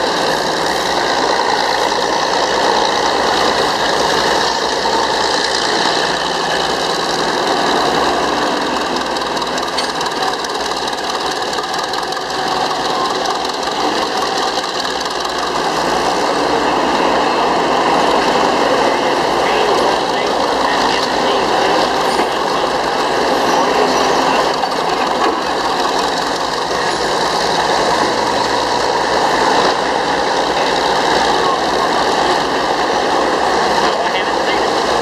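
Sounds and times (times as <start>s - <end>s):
diesel engine running under load: 0.0s - 35.0s
shovel machinery clattering: 2.0s - 16.0s.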